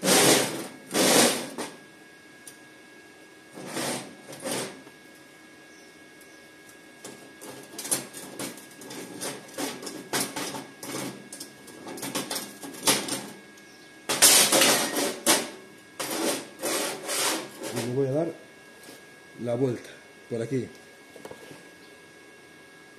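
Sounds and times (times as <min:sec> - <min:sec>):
steel plates clanking and scraping: 0:14.1 - 0:17.9.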